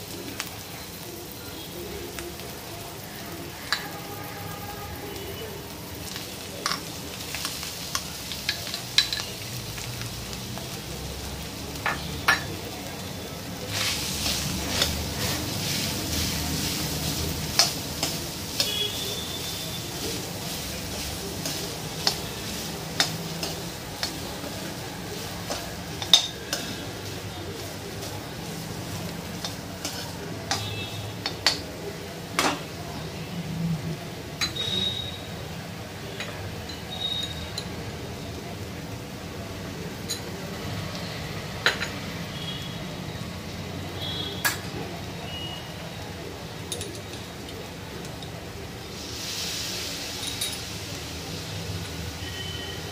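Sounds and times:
frying sizzle: 0.0 - 52.9
steel spoon clinking against pan: 7.9 - 9.4, 16.6 - 24.6, 25.4 - 27.7, 28.9 - 31.6, 34.4 - 35.1, 36.2 - 37.8, 46.7 - 48.4, 50.1 - 50.7.

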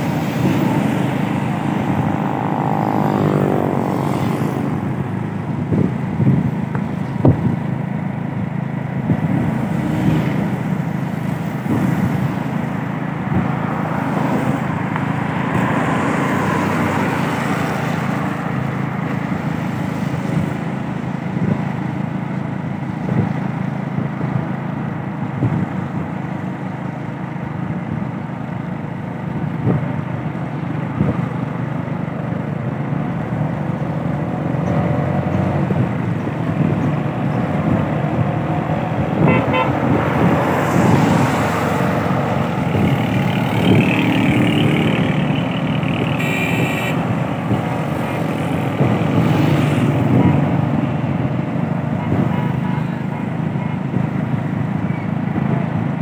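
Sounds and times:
vehicle passing by: 0.0 - 6.6, 9.2 - 21.0, 32.9 - 53.6
motorcycle riding on wet road: 0.0 - 56.0.

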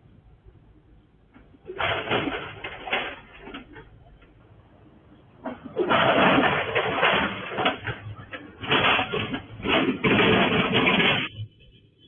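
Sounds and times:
bucket scraping on asphalt: 5.5 - 11.6.

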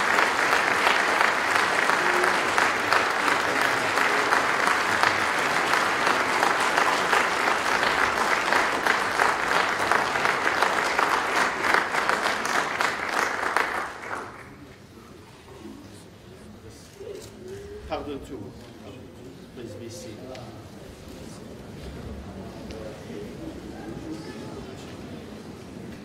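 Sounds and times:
congregation applauding: 0.0 - 14.8.

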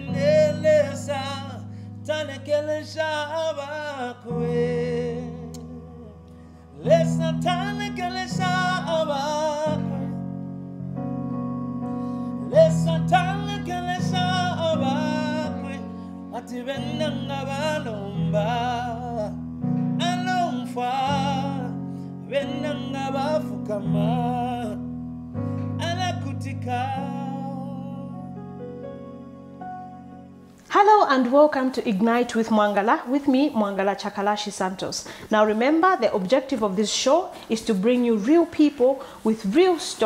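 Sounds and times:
man singing with vibrato: 0.0 - 10.4, 12.1 - 30.5.

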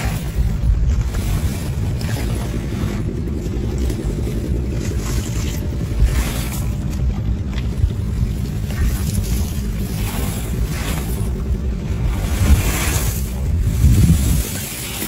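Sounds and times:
wind buffeting microphone: 0.0 - 15.0
scraping on gravel: 3.9 - 15.0.

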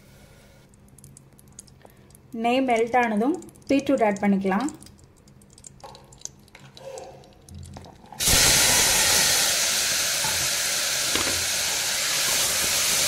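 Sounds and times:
loud steady sizzle: 7.4 - 13.0.

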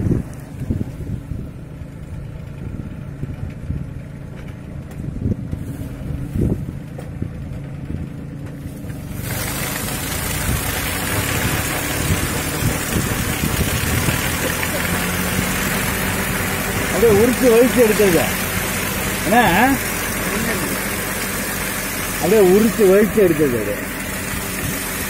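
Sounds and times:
small engine running: 0.0 - 25.0
steel drums churning soil: 2.2 - 25.0
loud steady hiss: 9.0 - 25.0.

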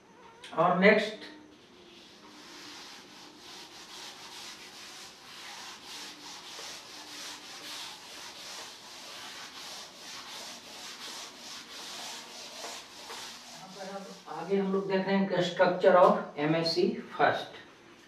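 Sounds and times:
duster wiping chalk off blackboard: 1.5 - 15.0.

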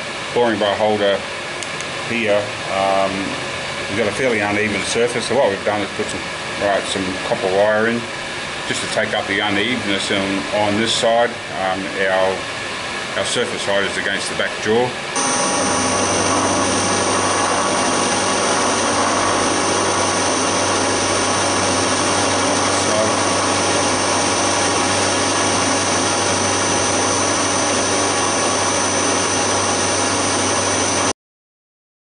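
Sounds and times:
milling machine cutting steel: 15.2 - 31.1.

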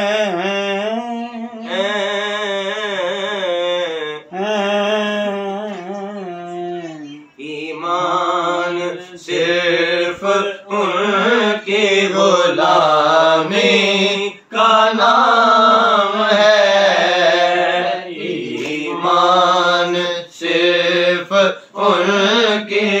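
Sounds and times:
man singing unaccompanied: 0.0 - 23.0.

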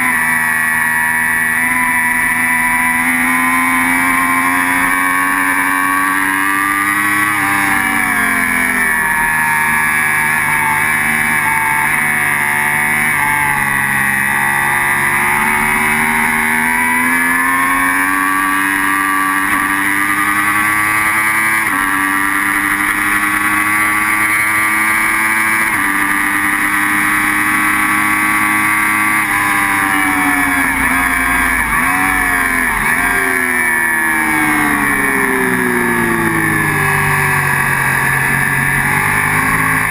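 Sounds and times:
motorcycle engine racing: 0.0 - 39.9.

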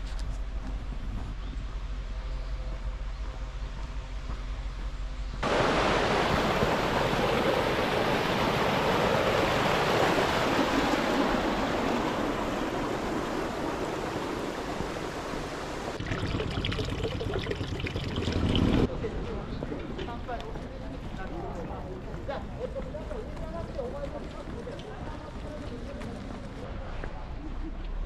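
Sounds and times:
rushing stream water: 5.4 - 18.9.

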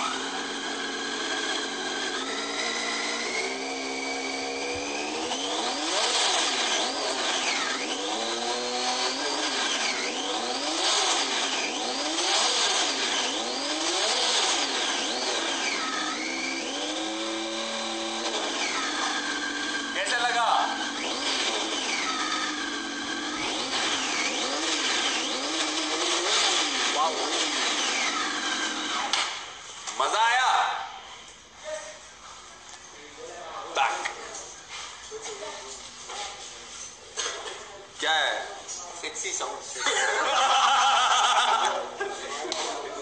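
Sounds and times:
motorcycle engine revving: 0.0 - 29.7.

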